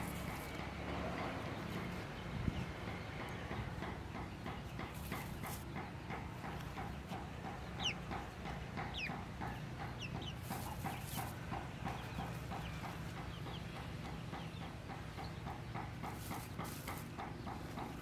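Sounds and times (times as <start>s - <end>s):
chicken clucking: 5.0s - 18.0s
straw rustling: 16.1s - 17.1s.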